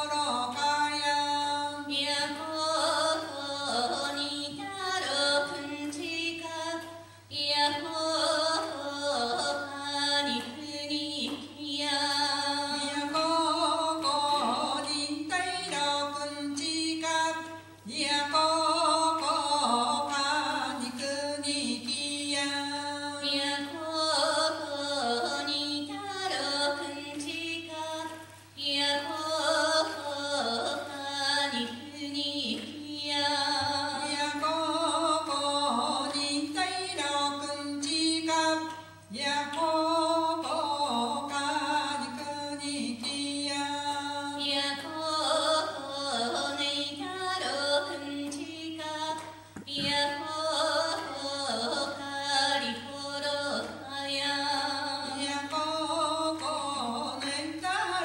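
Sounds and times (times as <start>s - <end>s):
women singing chant-like song: 44.2s - 58.0s.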